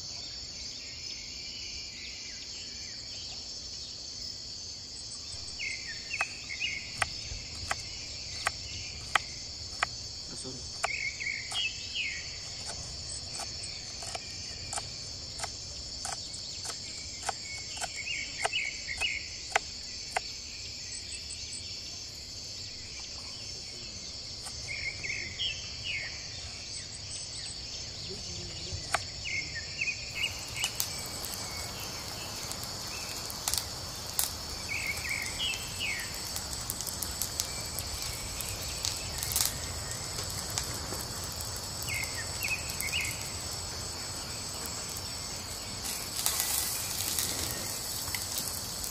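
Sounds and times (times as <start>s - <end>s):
background hiss: 0.0s - 48.9s
crickets and insects droning: 0.0s - 48.9s
bird chirps: 5.2s - 21.8s, 22.7s - 36.4s.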